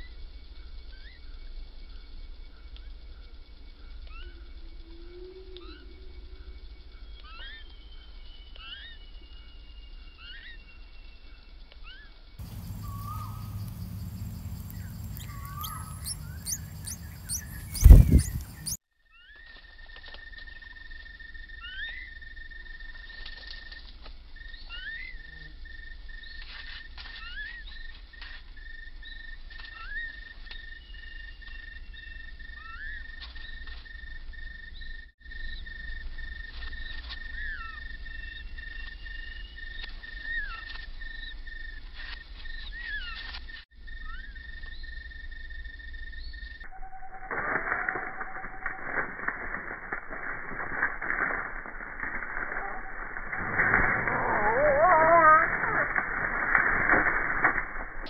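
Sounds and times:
cricket trilling: 0:00.0 - 0:58.0
insect chirping call: 0:00.0 - 0:58.0
high rising bird chirps: 0:07.2 - 0:18.8, 0:46.2 - 0:57.6
bird whistled notes: 0:12.7 - 0:13.6, 0:14.7 - 0:18.8, 0:46.7 - 0:49.0.

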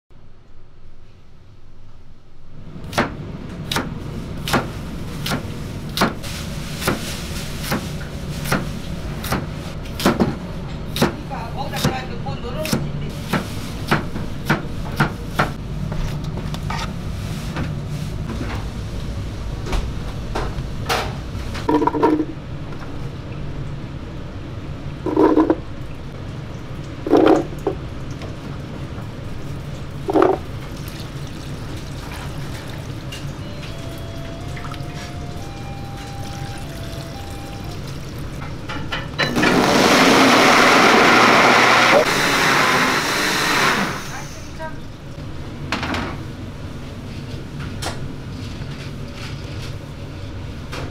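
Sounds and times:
kitchen hum: 0:02.6 - 0:50.9
blender running at high speed: 0:39.4 - 0:44.3.

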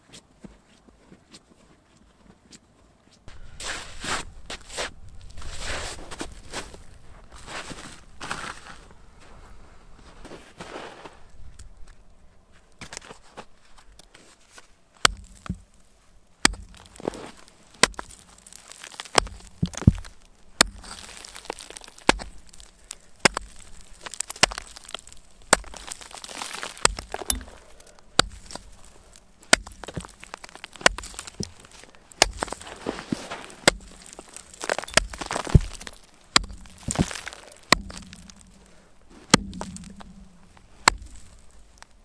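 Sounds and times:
hatchet chopping ice: 0:15.0 - 0:15.8, 0:16.4 - 0:41.8.

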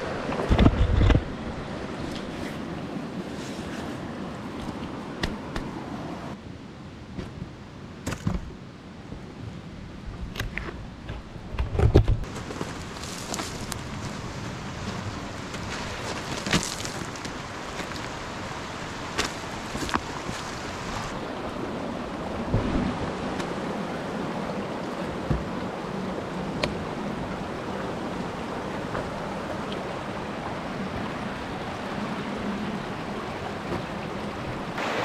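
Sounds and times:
mountain stream rushing: 0:00.0 - 0:06.4, 0:12.2 - 0:35.0
footsteps on loose stones: 0:12.2 - 0:18.3, 0:18.9 - 0:21.1.

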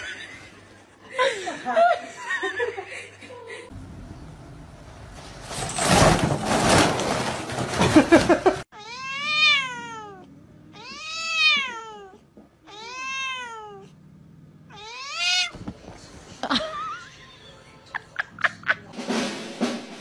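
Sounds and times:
cat meowing: 0:08.7 - 0:13.9, 0:14.7 - 0:15.6.

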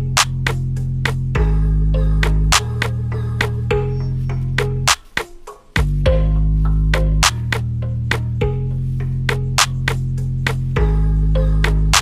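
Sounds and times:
sustained bass notes: 0:00.0 - 0:05.0, 0:05.8 - 0:12.0
percussive hits: 0:07.0 - 0:08.4.

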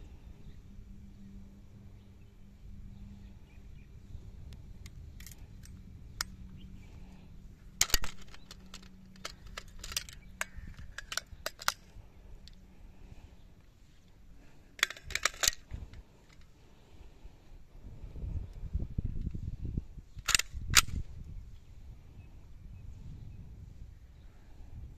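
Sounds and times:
rifle action metal clicks: 0:04.8 - 0:12.6, 0:14.4 - 0:16.5, 0:20.2 - 0:21.1.

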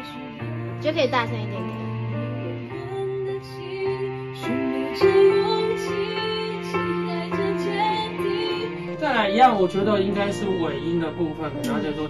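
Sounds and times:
woman singing: 0:00.0 - 0:08.9
sustained chords: 0:00.0 - 0:12.0.

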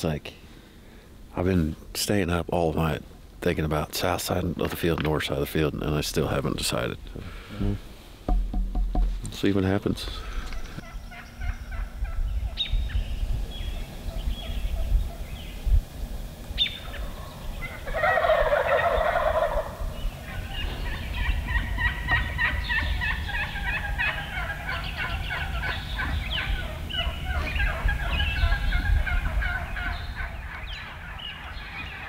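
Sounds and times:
turkeys gobbling: 0:16.6 - 0:32.0.

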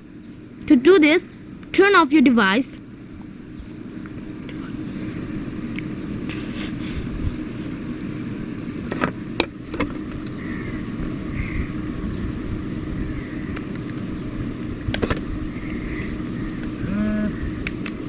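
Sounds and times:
low background rumble: 0:00.0 - 0:18.0
sharp clicks: 0:17.6 - 0:18.0.

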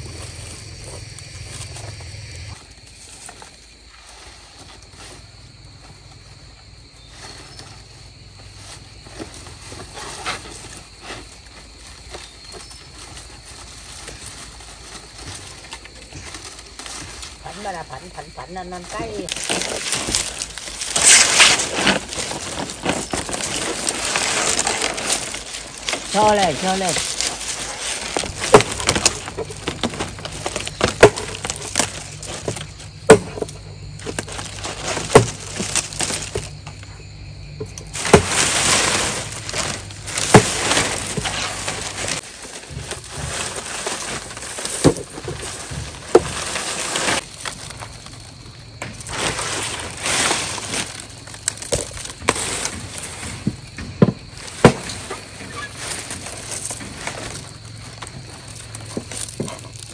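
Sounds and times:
rustling crackling noise: 0:00.0 - 0:37.0, 0:37.7 - 0:59.9
sharp knocks and cracks: 0:19.3 - 0:36.8, 0:37.6 - 0:59.9.

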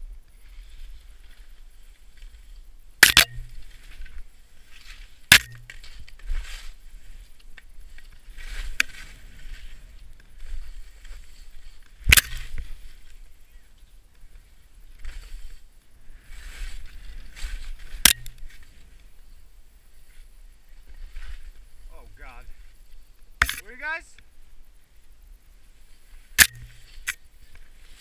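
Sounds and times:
sharp knocks: 0:03.0 - 0:03.6, 0:05.3 - 0:05.8
skis swishing through snow: 0:06.2 - 0:07.3, 0:15.0 - 0:17.8.

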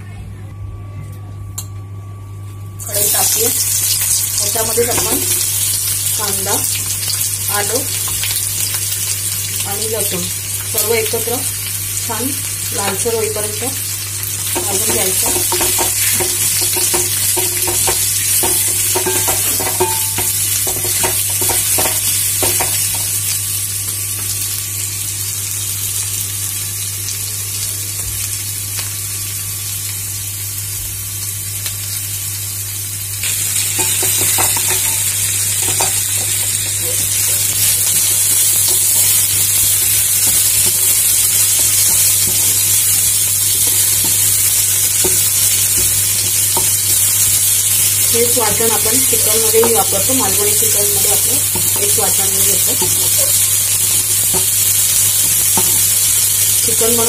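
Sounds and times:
onions sizzling in oil: 0:02.8 - 0:57.0.

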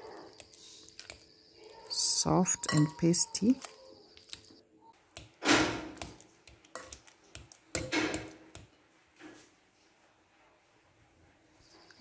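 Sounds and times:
fork mashing avocado: 0:00.0 - 0:08.8.

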